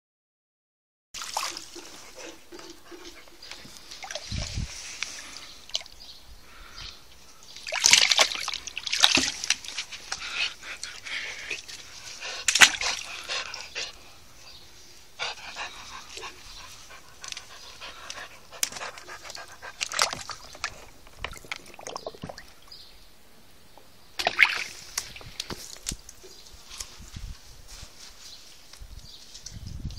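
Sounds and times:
water splashing and sloshing: 1.2s - 6.1s, 7.5s - 14.1s, 15.2s - 22.8s, 24.2s - 26.9s
dog panting: 12.1s - 14.2s, 15.2s - 20.0s.

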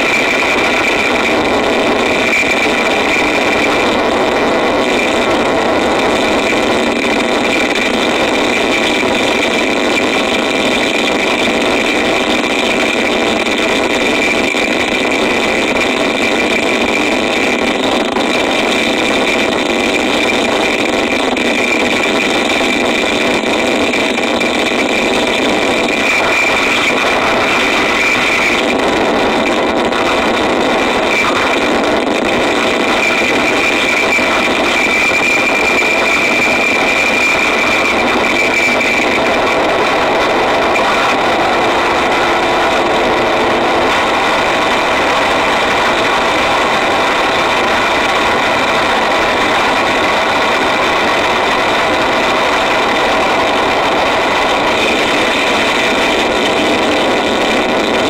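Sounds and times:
harsh distorted noise: 0.0s - 58.0s.

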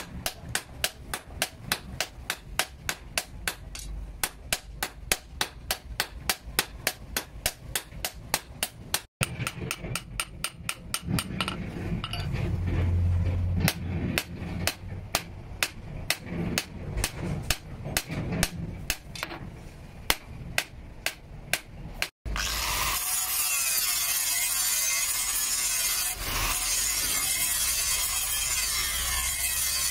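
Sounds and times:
hammer striking hot metal on anvil: 0.0s - 12.2s.

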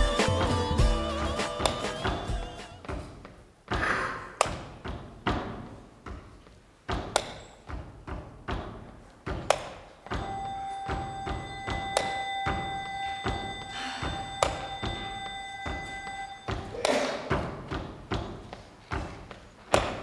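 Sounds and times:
heavy echoing thuds: 1.6s - 20.0s
steady multi-pitch ringing tone: 10.2s - 16.7s.

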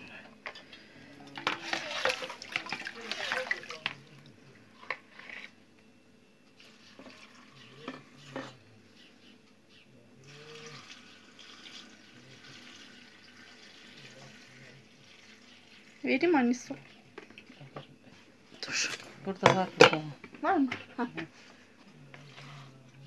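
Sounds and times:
brine pouring into glass jar: 10.3s - 15.4s.

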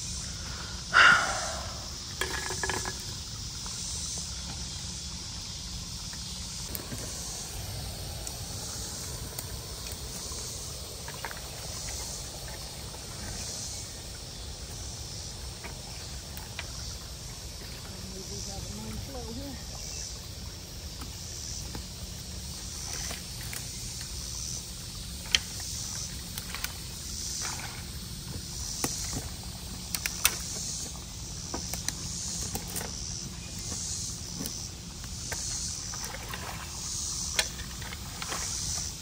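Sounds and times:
pulsing high hiss: 0.0s - 11.1s
water rushing: 0.6s - 2.0s
water sloshing and splashing: 6.0s - 14.7s, 25.1s - 39.0s.

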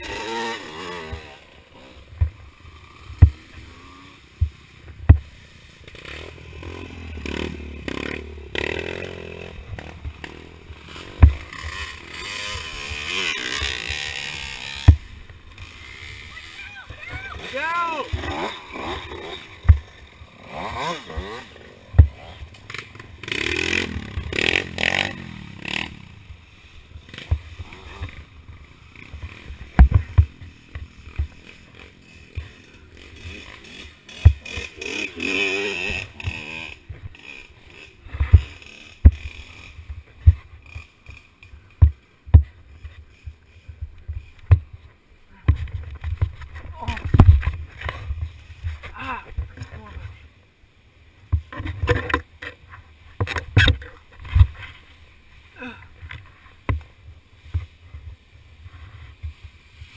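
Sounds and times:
dirt bike engines revving: 0.0s - 59.9s
dirt bike knocks and scrapes: 5.9s - 15.8s, 18.1s - 25.9s, 29.0s - 31.5s, 33.2s - 37.4s, 38.1s - 44.8s, 45.4s - 49.8s, 51.3s - 54.9s.

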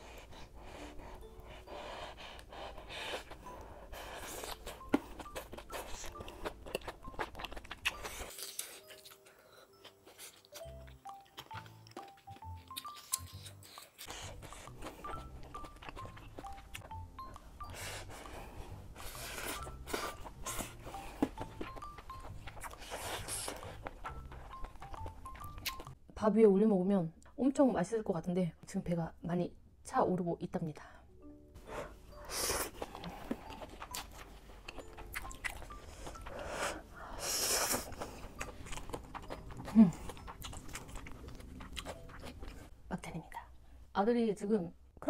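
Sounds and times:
noodles slurped and chewed: 0.0s - 26.0s, 32.1s - 42.7s
light background music: 0.0s - 44.8s
breathing through the nose: 35.9s - 38.3s.

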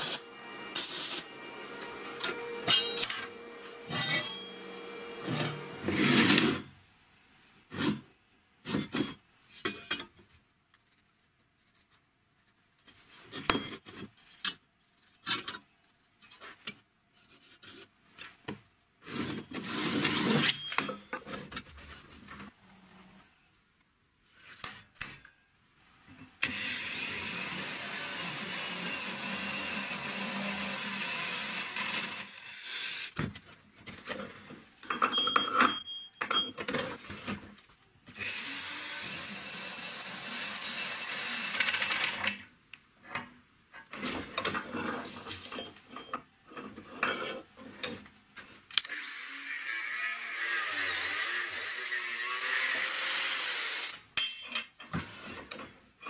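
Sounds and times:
power drill cutting steel tube: 0.0s - 6.7s, 26.4s - 33.2s, 38.2s - 42.4s, 48.8s - 54.0s.

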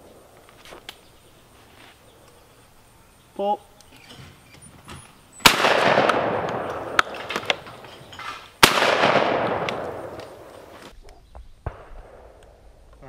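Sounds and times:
shotgun shots with echo: 5.4s - 7.9s, 8.6s - 10.9s, 11.6s - 12.4s.

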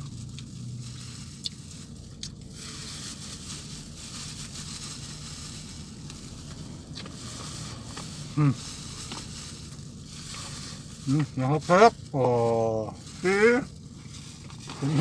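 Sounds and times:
person chewing: 0.0s - 2.6s
plastic glove rustling: 0.0s - 15.0s
vehicle cabin hum: 0.0s - 15.0s.

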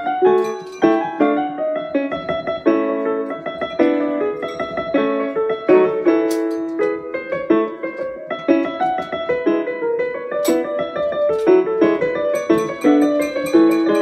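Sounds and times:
lively piano melody: 0.0s - 14.0s.

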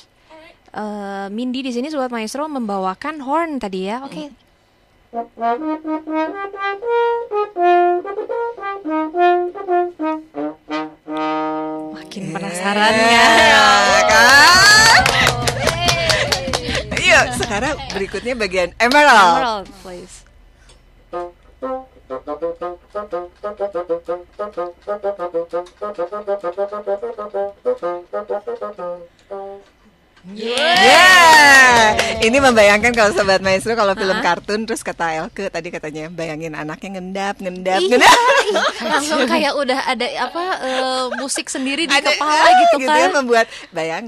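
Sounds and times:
french horn melody: 5.1s - 12.1s, 21.1s - 29.8s
bassoon playing detached notes: 21.1s - 29.8s.

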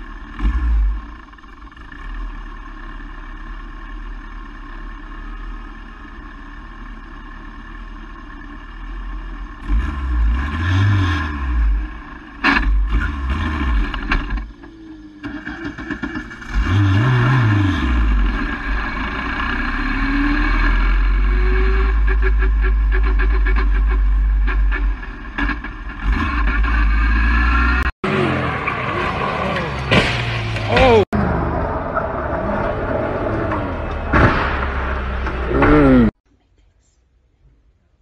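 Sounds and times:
sharp bang: 34.1s - 35.8s.

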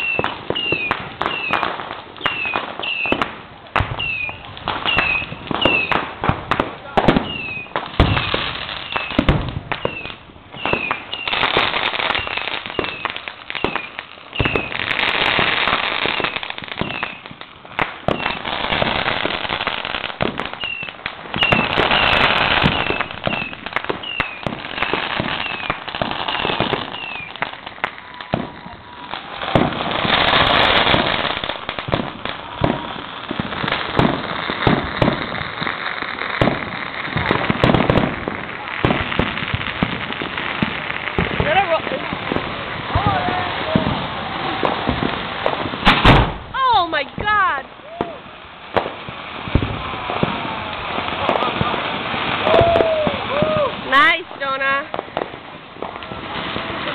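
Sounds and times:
falling firework whistles: 0.0s - 6.1s, 7.1s - 35.7s, 47.8s - 54.1s
firecrackers cracking: 0.0s - 56.9s.

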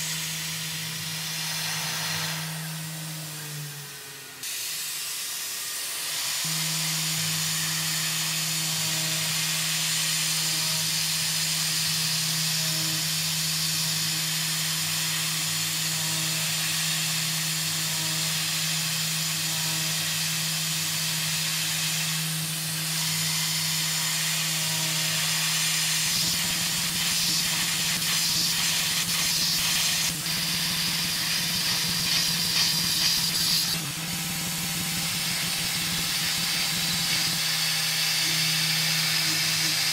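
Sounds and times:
milling machine spindle hum: 19.3s - 39.9s
crackling metal cutting noise: 19.9s - 39.9s
coolant nozzle hiss: 26.0s - 33.6s.

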